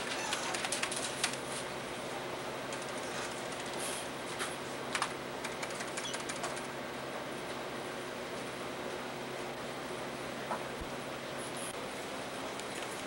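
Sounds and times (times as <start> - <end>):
electrical hum: 0.0 - 13.0
keyboard typing clicks: 4.9 - 6.7.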